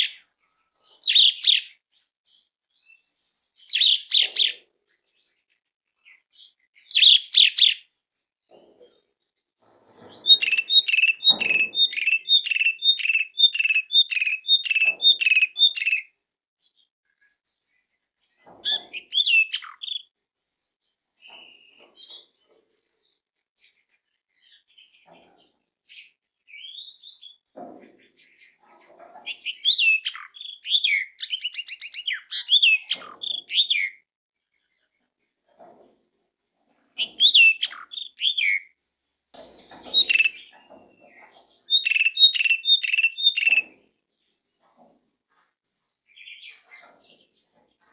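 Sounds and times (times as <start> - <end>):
starling calling and singing: 9.7 - 16.1, 26.0 - 34.0, 36.7 - 43.8.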